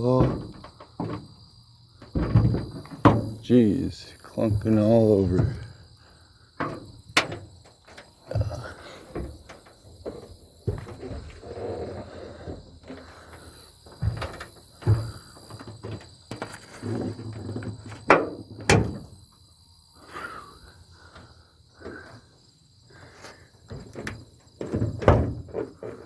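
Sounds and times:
truck door thudding and knocking: 0.0s - 1.4s, 2.0s - 3.5s, 13.8s - 16.5s, 17.7s - 19.2s, 23.7s - 26.0s.

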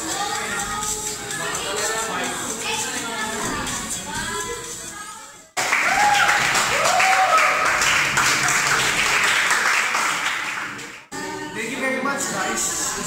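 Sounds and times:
music: 0.0s - 13.0s
people clapping: 5.6s - 11.1s.

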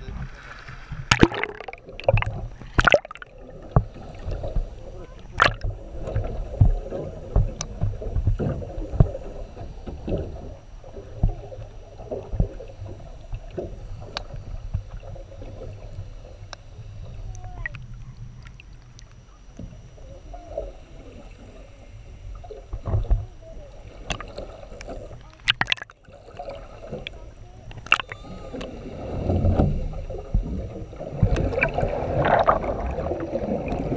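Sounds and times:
underwater moving water rumble: 0.0s - 33.9s
underwater knocks and clicks: 0.9s - 15.2s, 24.0s - 28.7s, 29.3s - 33.9s.

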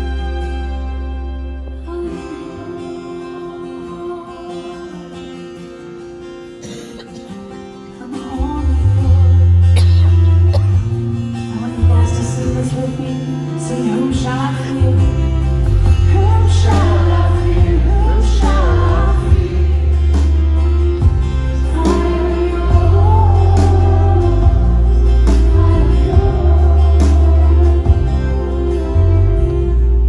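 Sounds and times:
person singing: 0.0s - 5.8s, 7.9s - 10.5s, 11.4s - 30.0s
live band playing: 0.0s - 30.0s
heavy bass line: 15.0s - 30.0s.

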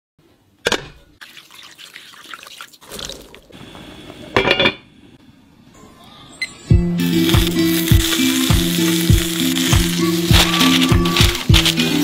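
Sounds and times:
liquid dripping and trickling: 1.2s - 3.5s
handling noises: 7.2s - 12.0s.

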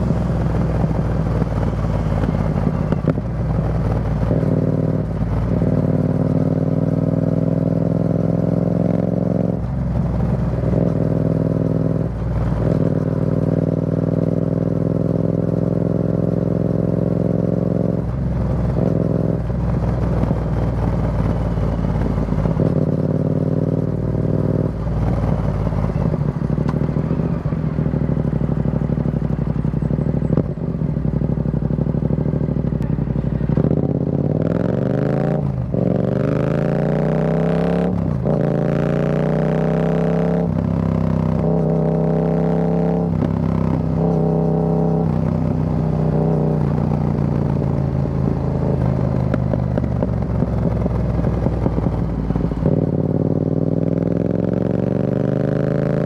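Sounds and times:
motorcycle engine cruising: 0.0s - 56.0s.

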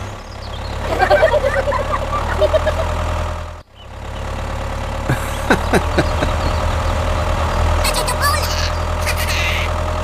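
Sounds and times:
tractor engine idling: 0.0s - 10.0s.

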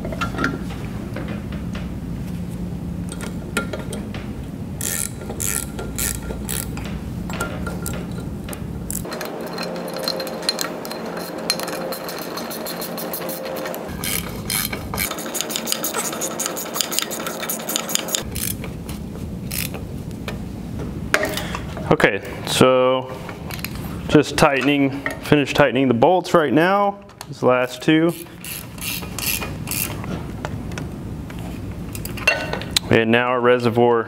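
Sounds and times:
ratchet wrench clicking: 4.8s - 6.8s, 8.9s - 18.6s, 19.5s - 19.8s, 28.1s - 30.0s.

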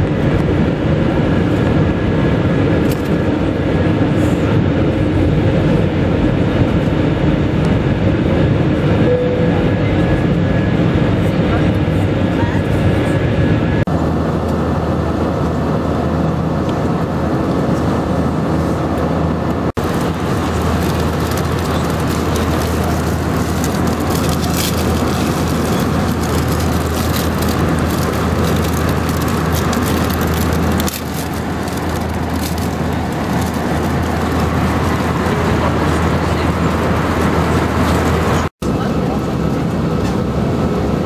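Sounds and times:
airliner cabin noise: 0.0s - 41.0s.

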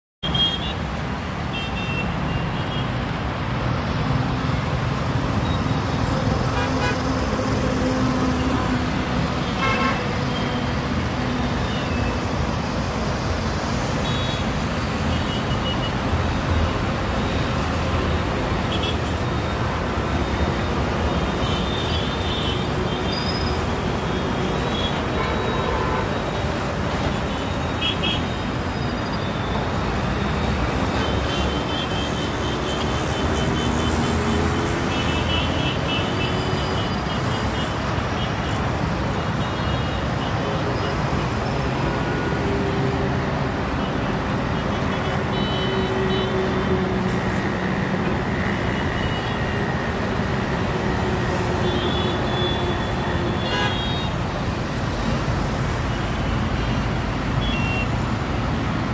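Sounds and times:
highway traffic: 0.2s - 58.9s
vehicle horn toots: 53.3s - 54.1s.

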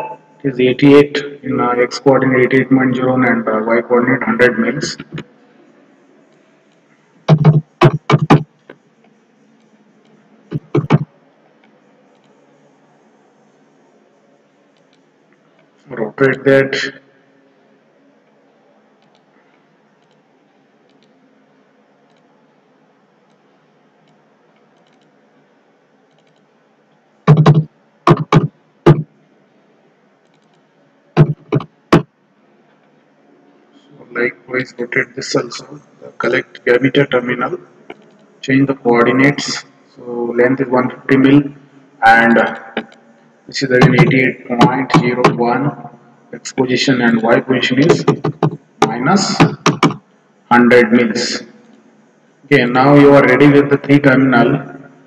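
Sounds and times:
keyboard typing: 7.3s - 8.8s, 9.6s - 11.1s, 20.0s - 20.2s, 24.0s - 25.2s, 26.1s - 26.5s, 27.3s - 29.1s, 31.2s - 32.1s, 47.9s - 48.6s, 49.3s - 50.0s
computer keyboard keystrokes: 26.1s - 26.4s.

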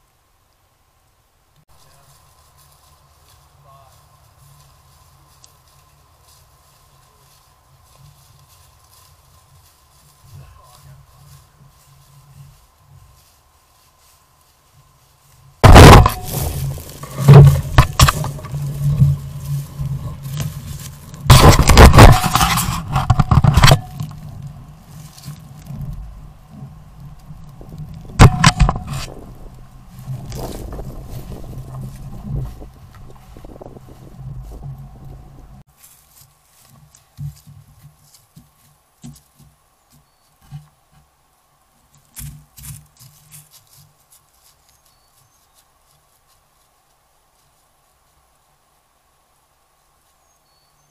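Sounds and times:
deer footsteps in dry leaves: 1.7s - 50.9s
scraping against camera housing: 17.0s - 18.6s, 21.2s - 24.2s, 28.2s - 29.2s.

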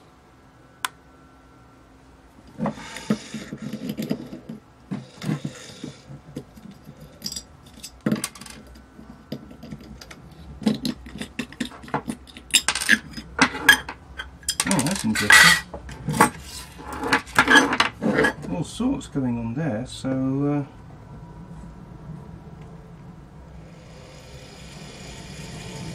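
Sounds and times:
metal scraping and rubbing: 2.5s - 18.5s.

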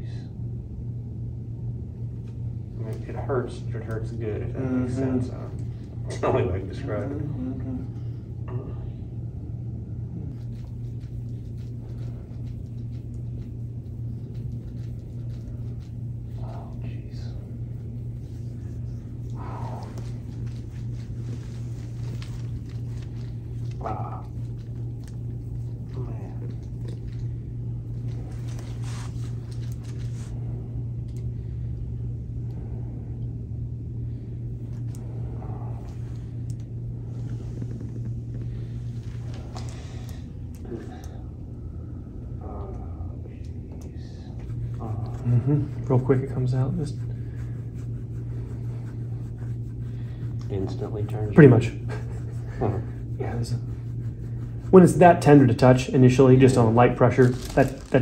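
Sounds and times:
low room hum: 0.0s - 58.0s
hands massaging bare back: 10.2s - 30.8s, 34.6s - 41.1s, 44.0s - 58.0s
faint soft rustles: 10.3s - 31.5s, 34.1s - 41.2s.

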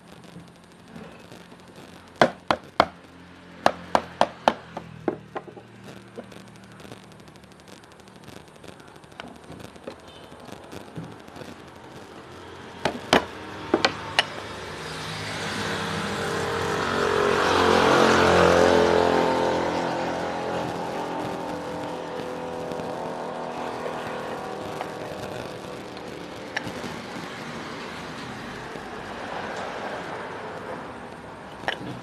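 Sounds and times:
sharp knocks on motor housing: 2.2s - 3.0s, 3.6s - 5.7s, 12.8s - 14.4s
vehicle engine passing: 13.4s - 32.0s.

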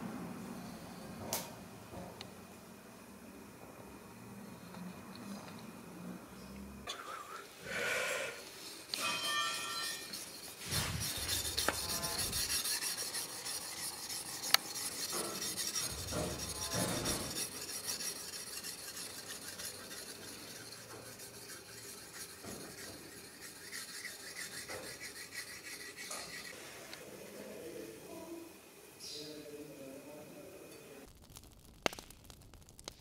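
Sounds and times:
sharpening stone scraping blade: 8.9s - 26.6s.

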